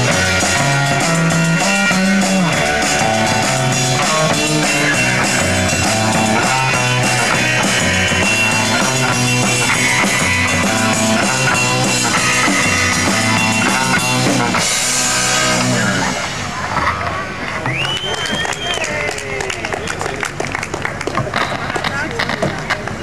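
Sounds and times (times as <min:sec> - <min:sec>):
live rock band playing: 0:00.0 - 0:17.6.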